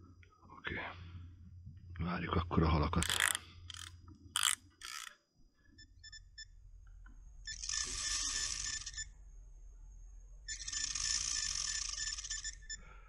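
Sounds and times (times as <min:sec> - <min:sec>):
shrill buzzy bite alarm: 0:10.5 - 0:12.9.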